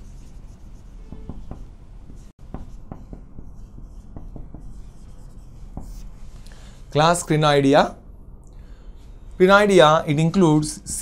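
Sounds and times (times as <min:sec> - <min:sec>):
marker writing on whiteboard: 0:00.0 - 0:06.3.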